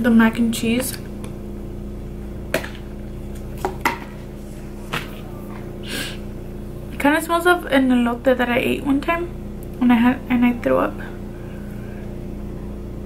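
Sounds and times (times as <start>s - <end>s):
steady low hum: 0.0s - 13.0s
person sniffing: 5.8s - 6.2s.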